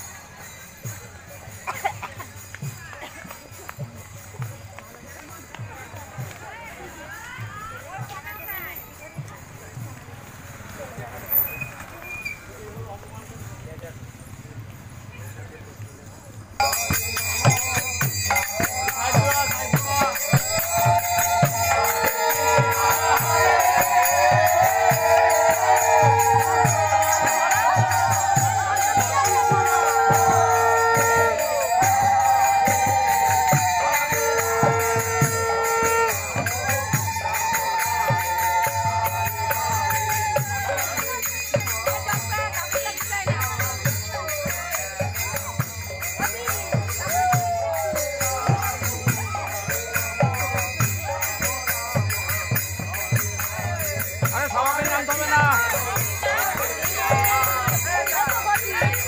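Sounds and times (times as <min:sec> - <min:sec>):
hand cymbals jingling: 0:00.0 - 0:12.9, 0:16.6 - 0:59.0
conch shell blasts: 0:16.6 - 0:38.4
women ululating: 0:20.5 - 0:40.8.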